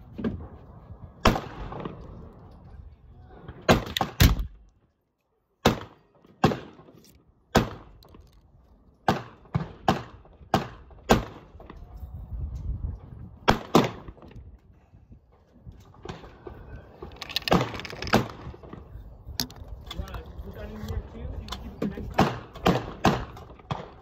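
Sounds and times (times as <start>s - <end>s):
pistol gunshot: 5.6s - 6.9s, 9.1s - 11.5s, 22.2s - 24.0s.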